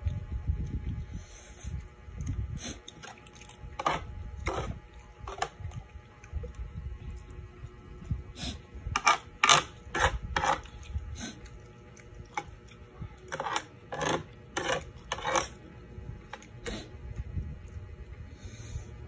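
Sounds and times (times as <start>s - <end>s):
wet eating smacks and clicks: 10.6s - 12.8s.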